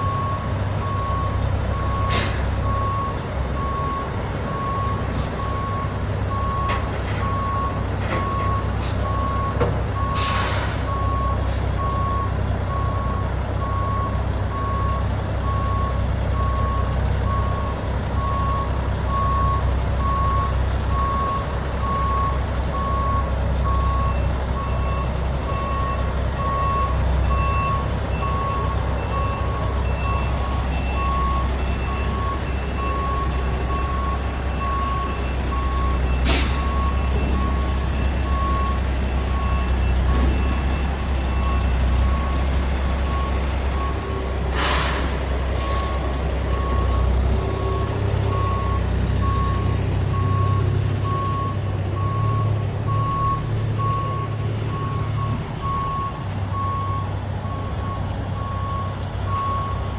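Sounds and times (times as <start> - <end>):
backup alarm beeping: 0.0 - 59.9
diesel engine rumble: 0.0 - 59.9
air brake hisses: 2.1 - 2.7, 10.2 - 11.7, 36.2 - 37.0, 44.5 - 46.0.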